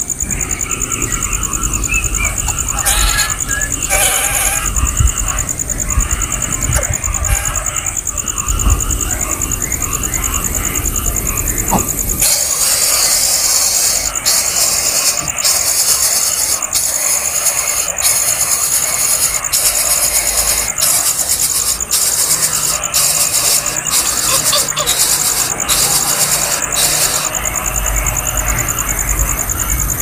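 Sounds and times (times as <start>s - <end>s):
nestlings begging hisses: 2.2s - 8.3s, 11.0s - 28.4s.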